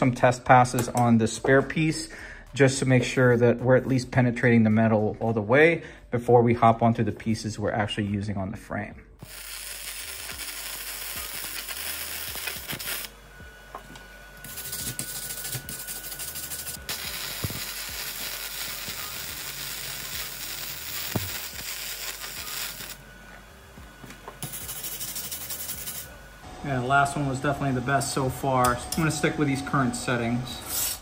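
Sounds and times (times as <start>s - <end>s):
welder crackling: 9.2s - 13.2s, 14.4s - 26.2s.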